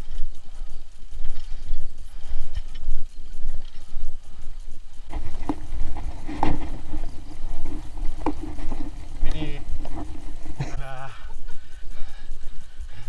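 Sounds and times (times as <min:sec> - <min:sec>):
bike rumbling over dirt: 0:00.0 - 0:10.9
bike knocks and rattles: 0:05.1 - 0:10.8.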